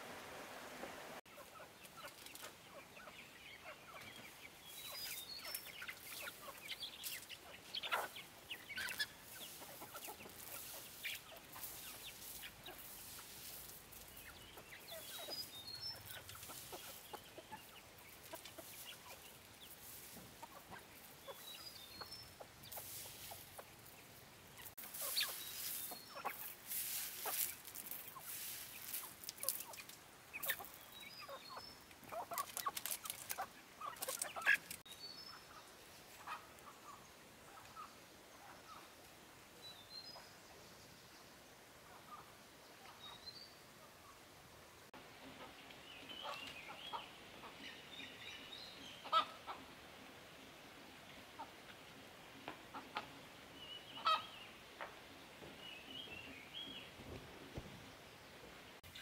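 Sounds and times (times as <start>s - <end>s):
chickens clucking: 0.0s - 40.4s, 41.7s - 57.9s.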